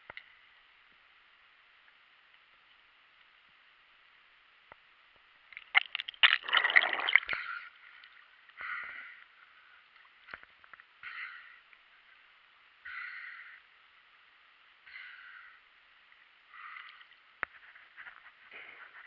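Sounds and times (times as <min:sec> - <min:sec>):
water sloshing: 0:05.6 - 0:08.2.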